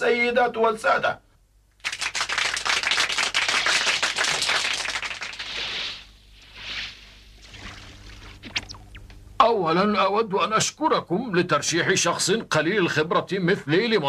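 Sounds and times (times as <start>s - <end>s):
crowd applauding: 1.8s - 5.6s.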